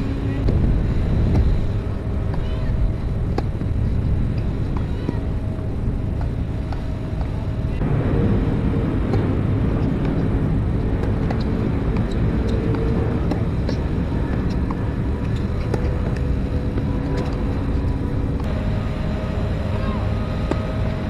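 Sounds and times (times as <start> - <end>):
low outdoor rumble: 0.0 - 21.0
tennis racquets striking ball: 1.2 - 7.6, 8.9 - 18.5, 20.1 - 21.0.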